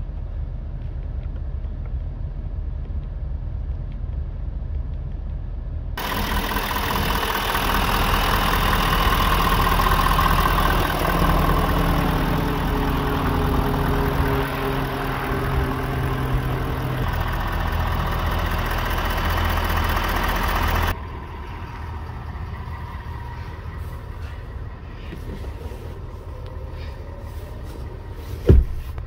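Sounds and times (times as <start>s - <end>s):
pickup engine idling: 6.0s - 29.0s.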